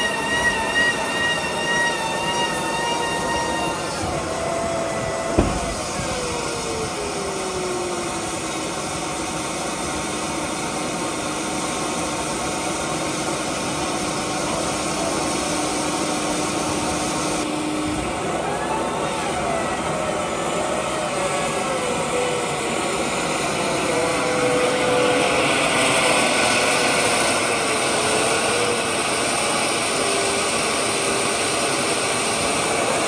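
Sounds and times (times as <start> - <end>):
machine noise with whine: 0.0 - 33.0
sharp knock: 5.4 - 6.1.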